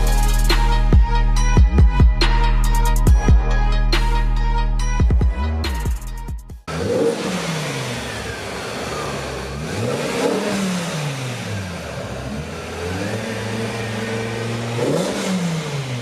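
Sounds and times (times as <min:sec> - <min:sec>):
car engine revving: 0:06.6 - 0:16.0.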